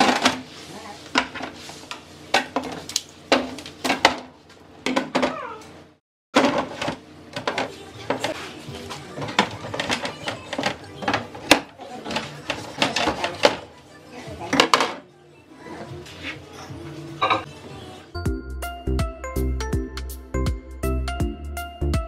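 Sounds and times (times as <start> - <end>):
bottles clunking on fridge shelves: 6.4 - 8.3, 17.2 - 17.5.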